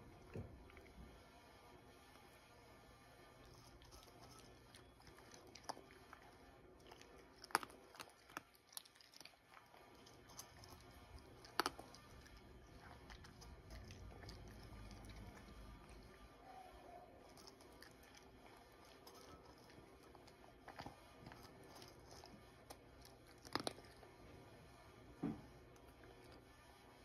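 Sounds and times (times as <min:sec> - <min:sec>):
cat crunching dry kibble: 0:03.4 - 0:16.1, 0:17.2 - 0:24.2.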